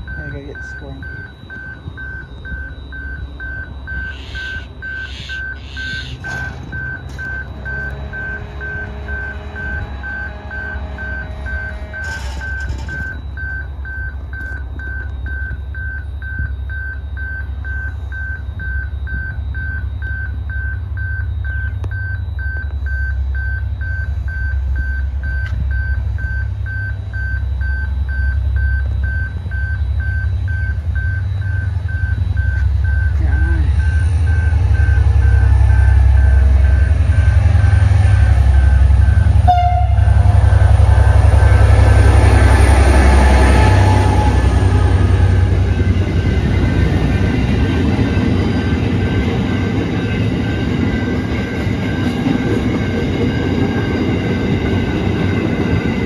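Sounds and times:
electronic warning beeper: 0.0 - 56.0
locomotives rumbling: 30.8 - 56.0.

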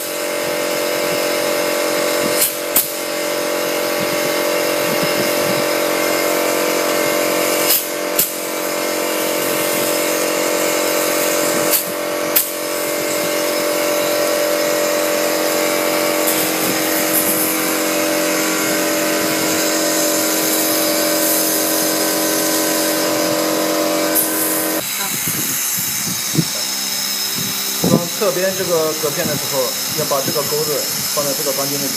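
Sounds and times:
air compressor humming: 0.0 - 31.9
pneumatic clip gun snapping: 0.0 - 31.9.

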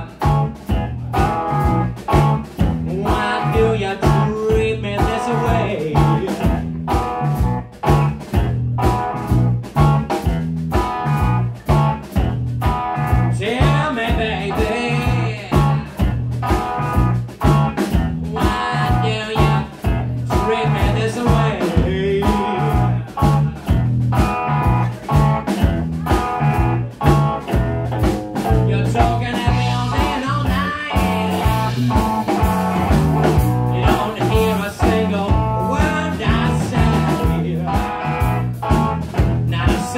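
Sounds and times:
man singing: 0.0 - 6.8, 13.3 - 16.2, 18.2 - 23.9, 28.4 - 39.9
blues-rock band playing: 0.0 - 39.9.

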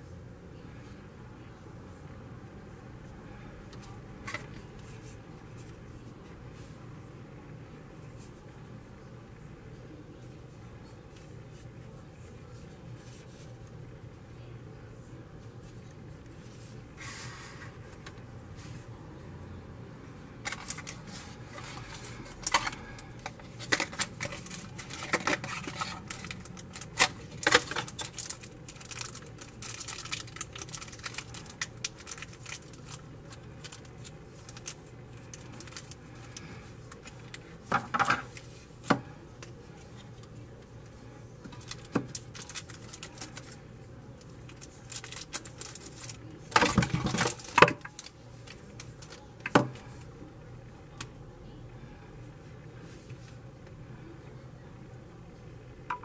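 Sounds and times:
plastic bag crinkling: 20.4 - 38.5, 41.5 - 43.6, 44.2 - 49.3.

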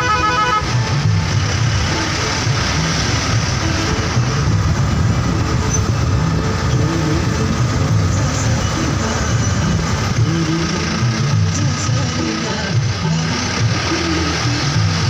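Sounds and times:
road noise: 0.0 - 15.0
vehicle engine: 0.0 - 15.0.

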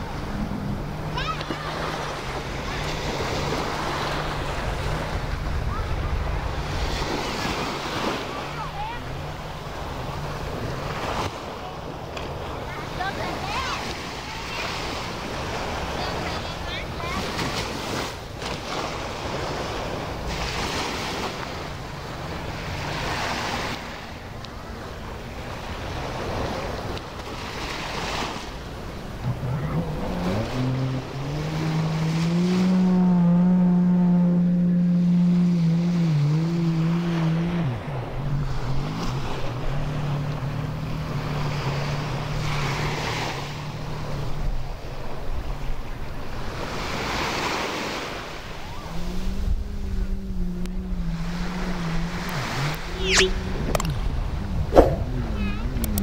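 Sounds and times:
sea waves washing onto sand: 0.0 - 33.0, 35.3 - 56.0
engine running: 0.0 - 56.0.

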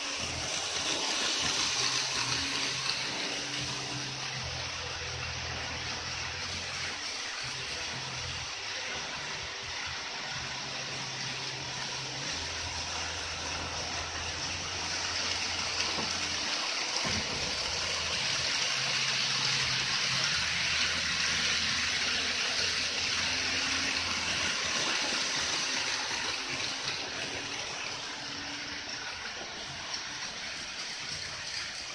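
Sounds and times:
model train wheels rattling on rail: 0.0 - 3.9.

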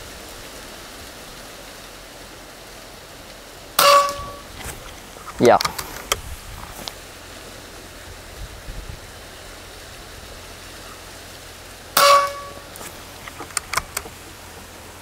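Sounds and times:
wind noise on microphone: 3.8 - 10.5
rifle action clicks: 13.2 - 14.1.

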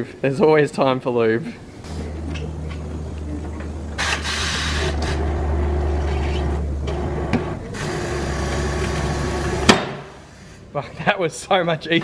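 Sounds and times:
machine motor hum: 1.8 - 9.7.

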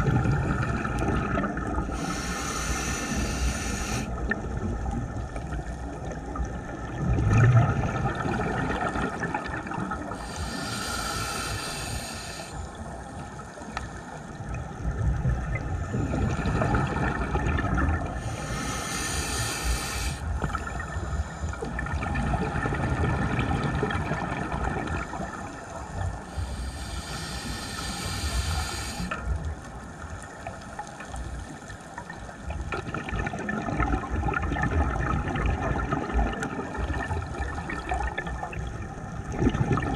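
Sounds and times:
exhaled air bubbling: 0.0 - 30.8, 31.4 - 39.9
scuba regulator hissing inhalation: 1.9 - 4.2, 10.1 - 12.8, 18.2 - 21.7, 26.2 - 29.4.

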